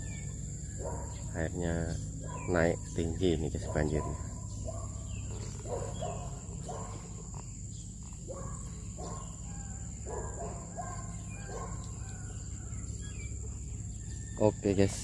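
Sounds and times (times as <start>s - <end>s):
high-pitched insect drone: 0.0s - 15.0s
low outdoor rumble: 0.0s - 15.0s.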